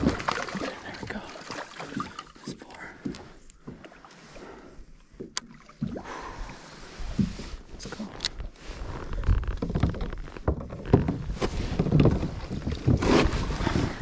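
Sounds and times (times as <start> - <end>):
water splashing: 0.0 - 3.0, 5.2 - 7.3.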